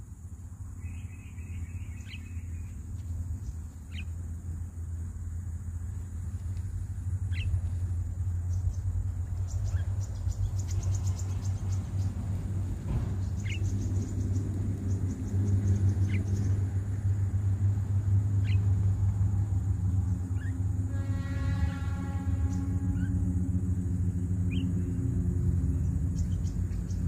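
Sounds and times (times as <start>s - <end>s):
chirping bird calls: 0.8s - 4.2s, 7.2s - 16.8s, 18.3s - 18.9s, 19.9s - 20.6s, 24.4s - 25.0s, 25.6s - 27.0s.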